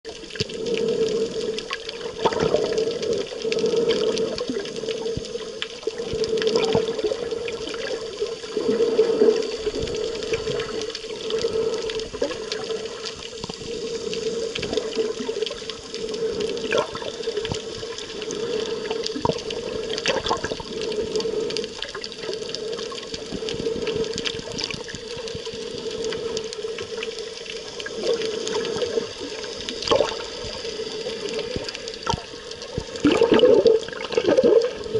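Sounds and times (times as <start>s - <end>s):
muffled underwater rushing water: 0.0s - 34.9s
sharp clicks and crackles: 0.1s - 34.9s
underwater drone: 0.1s - 34.9s.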